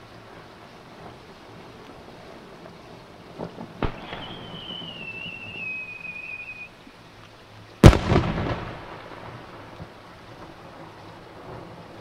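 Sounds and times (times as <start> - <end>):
firework bang: 3.8 - 5.8, 7.8 - 9.0
firework whistle: 3.8 - 6.7.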